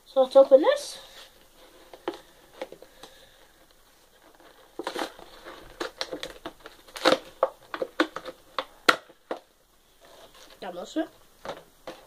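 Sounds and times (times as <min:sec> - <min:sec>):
plastic packaging crackling: 0:00.3 - 0:12.0.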